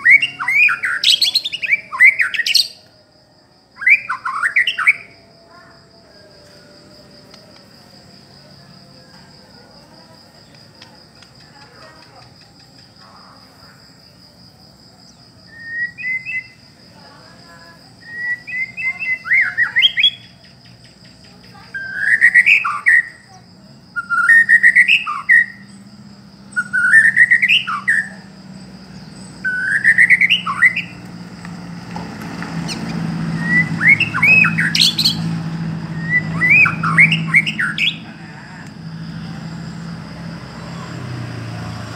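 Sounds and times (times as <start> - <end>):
bird singing whistled phrases: 0.0 - 2.8, 3.8 - 5.2, 15.5 - 16.6, 18.0 - 20.4, 21.7 - 23.3, 24.0 - 25.6, 26.5 - 28.2, 29.4 - 31.0, 32.7 - 38.0.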